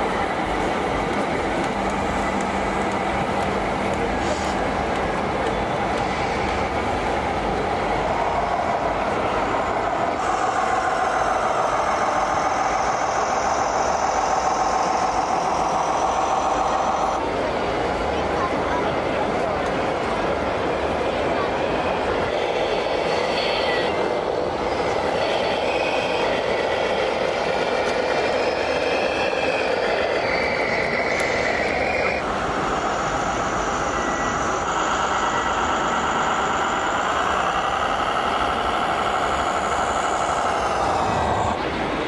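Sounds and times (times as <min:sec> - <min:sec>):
steady background noise: 0:00.0 - 0:42.0
electric model truck whine: 0:10.0 - 0:17.2, 0:27.4 - 0:41.6.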